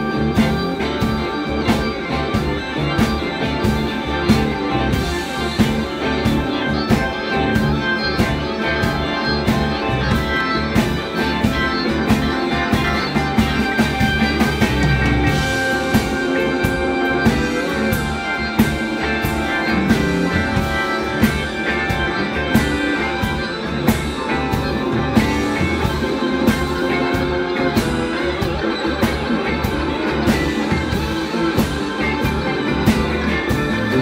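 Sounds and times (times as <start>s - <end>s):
drums backbeat: 0.0s - 34.0s
guitar: 0.0s - 34.0s
organ chords: 0.0s - 34.0s.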